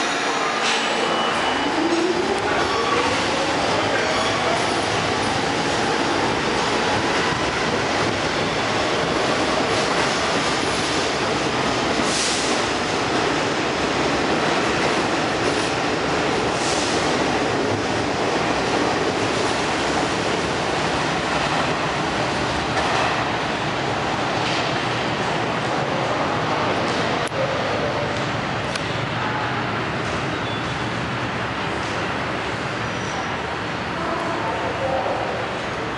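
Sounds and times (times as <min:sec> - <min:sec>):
subway train rumbling past: 0:00.0 - 0:35.9.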